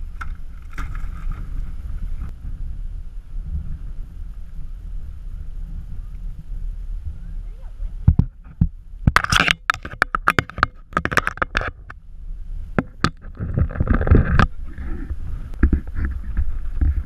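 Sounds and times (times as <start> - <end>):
scraping rustle: 0.0 - 2.3, 12.9 - 17.0
low rumbling noise: 0.0 - 17.0.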